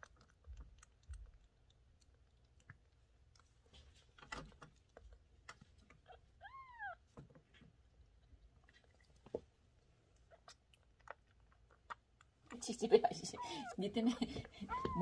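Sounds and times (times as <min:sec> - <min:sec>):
faint clicks and taps: 0:00.0 - 0:06.0
kitten meowing: 0:06.1 - 0:07.0, 0:14.7 - 0:15.0.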